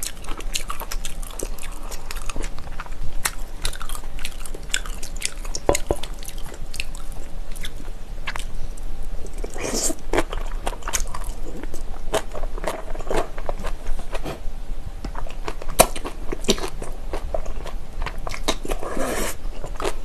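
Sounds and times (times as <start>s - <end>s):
close chewing with wet crunches: 0.0s - 8.6s.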